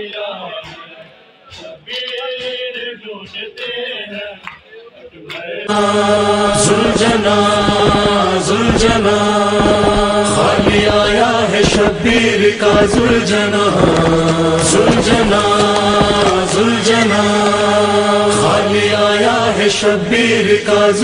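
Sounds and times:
men chanting a lament: 0.0 - 4.6, 5.2 - 21.0
regular beat: 5.7 - 17.8.

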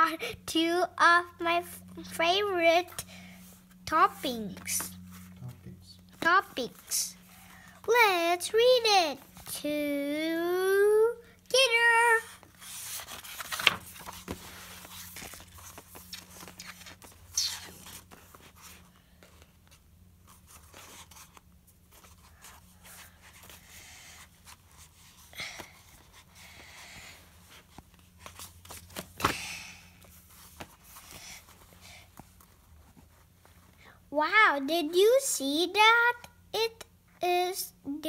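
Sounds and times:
book pages turning and rustling: 12.2 - 33.8.

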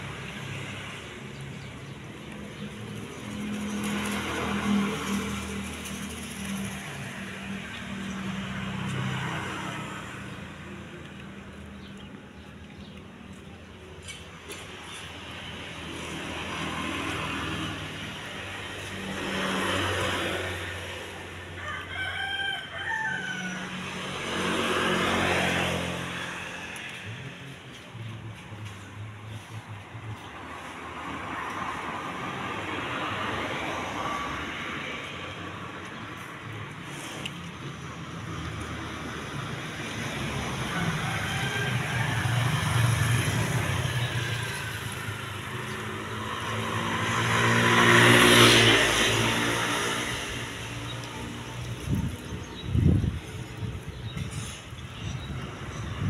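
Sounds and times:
road traffic passing: 0.0 - 56.0
rooster crowing: 21.4 - 24.2, 40.5 - 43.0.

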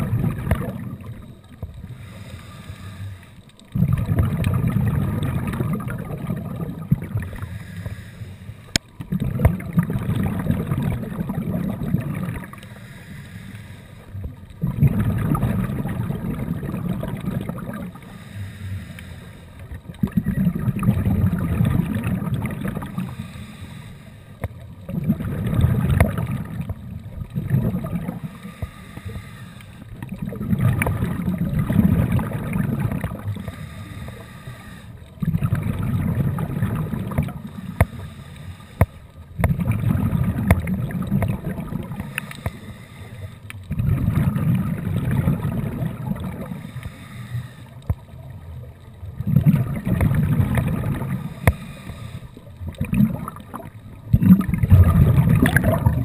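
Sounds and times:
diver inhaling: 1.7 - 3.5, 7.1 - 8.8, 12.4 - 14.4, 17.8 - 19.7, 22.7 - 24.4, 28.1 - 30.0, 33.1 - 35.2, 37.1 - 39.4, 41.8 - 43.7, 46.3 - 47.9, 51.0 - 52.6
bubbly exhale through regulator: 14.6 - 19.4, 24.9 - 47.7, 49.2 - 56.0.

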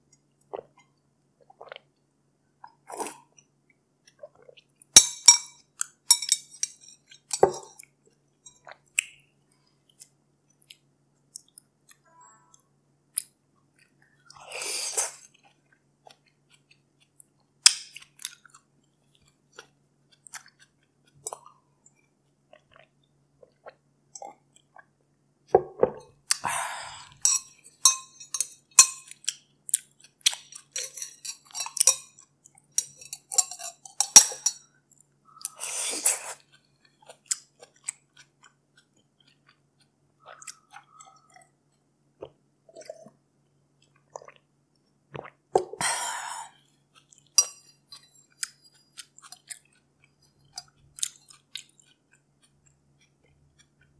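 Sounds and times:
chewing and mouth noises: 13.2 - 24.9, 26.1 - 44.5, 46.5 - 53.9
spoon clinking ice in glass: 27.2 - 29.1, 32.8 - 34.6.

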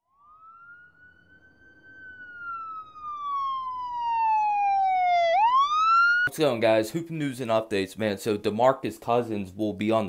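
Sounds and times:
synthesized siren-like tone: 0.0 - 6.3.

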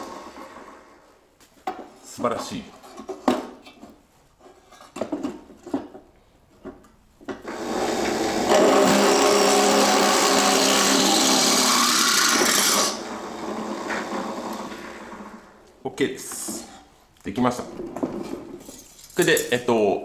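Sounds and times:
drill press drilling steel: 7.4 - 15.5.

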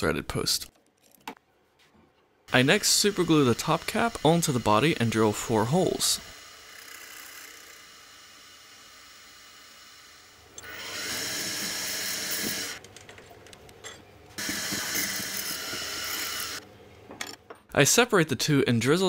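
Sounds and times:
milling machine spindle whining: 2.5 - 8.4, 10.6 - 12.8, 14.4 - 16.6.

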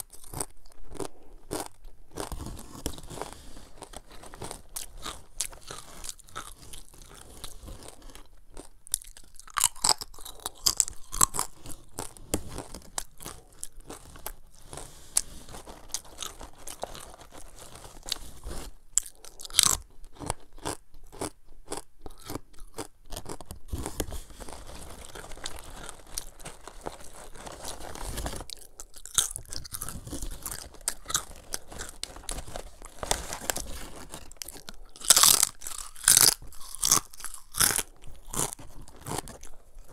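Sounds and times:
crunchy chips being chewed: 0.0 - 39.9.

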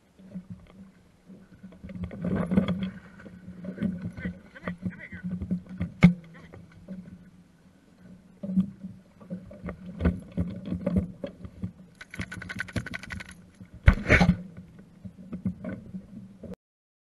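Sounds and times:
water splashing: 12.0 - 14.4.

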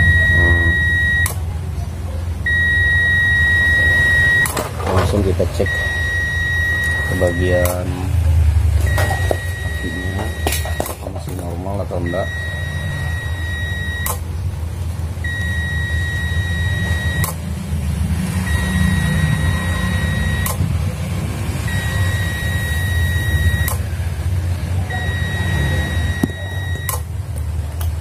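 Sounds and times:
alarm buzzer beeping: 0.0 - 1.4, 2.5 - 4.6, 5.6 - 7.8, 8.9 - 10.9, 12.0 - 14.2, 15.2 - 17.4, 18.4 - 20.6, 21.6 - 23.8, 24.9 - 27.0
sharp click: 17.2 - 17.4.

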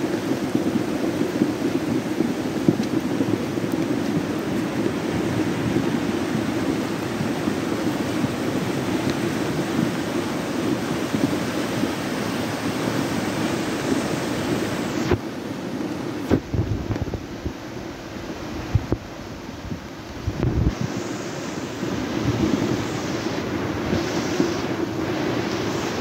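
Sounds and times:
floodwater rushing down gully: 0.0 - 26.0.

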